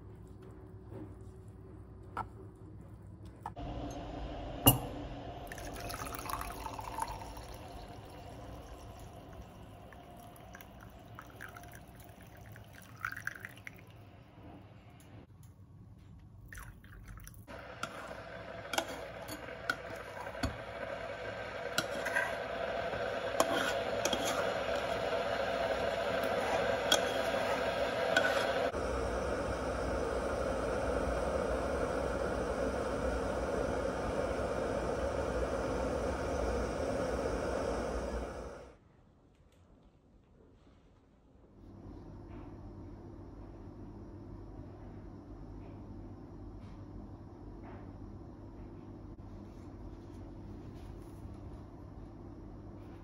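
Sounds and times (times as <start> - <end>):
milk pouring into a mug: 5.4 - 14.0, 16.5 - 28.8
spoon scraping and stirring in pot: 17.5 - 28.8.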